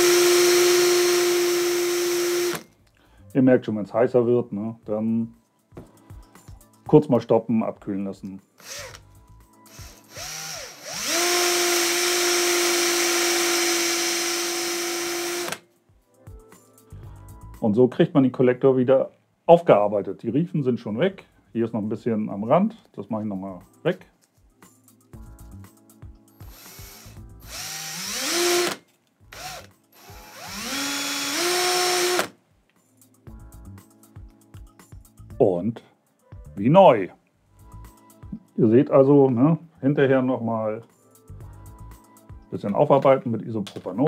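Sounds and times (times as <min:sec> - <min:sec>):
drill spinning with whine: 0:00.0 - 0:02.6, 0:08.6 - 0:09.0, 0:09.7 - 0:15.6, 0:26.4 - 0:32.3.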